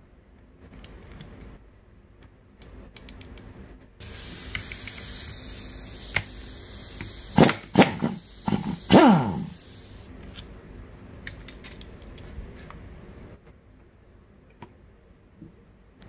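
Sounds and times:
compressed air hissing: 4.0s - 10.1s
small metal clicks: 11.2s - 12.3s.

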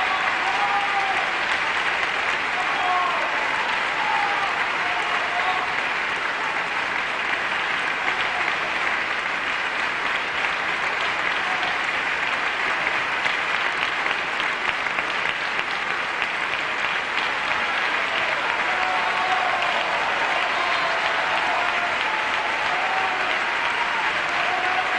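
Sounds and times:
audience applauding: 0.0s - 24.9s.

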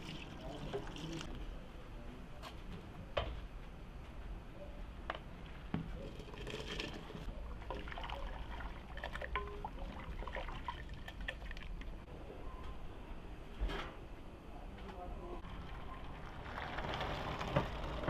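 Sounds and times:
ladle stirring sloshing liquid: 0.0s - 1.3s, 5.4s - 12.0s.

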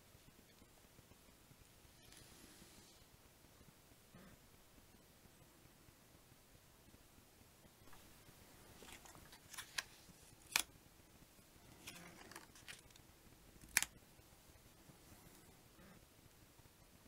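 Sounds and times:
papery scrapes of cards: 11.7s - 12.9s.

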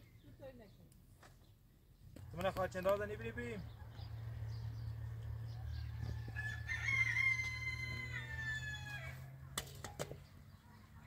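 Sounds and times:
rooster crowing: 5.7s - 9.3s.

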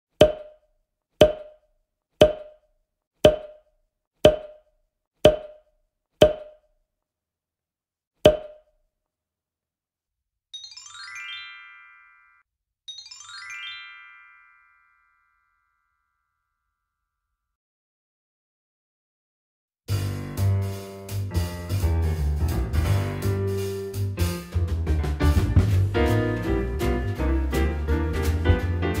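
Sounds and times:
hollow wood-block pops: 0.2s - 6.7s, 8.2s - 8.7s
sparkling chime flourishes: 10.6s - 15.7s.

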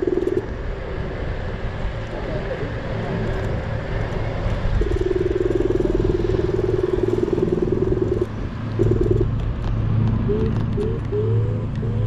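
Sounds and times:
buzzing tone: 0.0s - 0.6s, 4.7s - 9.4s
low steady hum: 0.0s - 12.0s
wind and road noise: 0.0s - 12.0s.

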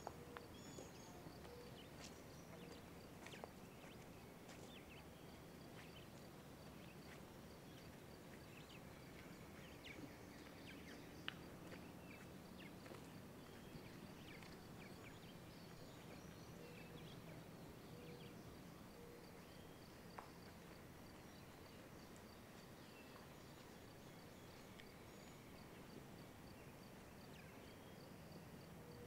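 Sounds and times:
bird chirps: 0.0s - 5.2s.

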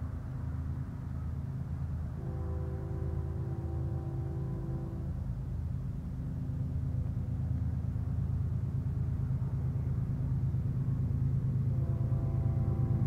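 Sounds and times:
diesel locomotive engine rumble: 0.0s - 13.0s.

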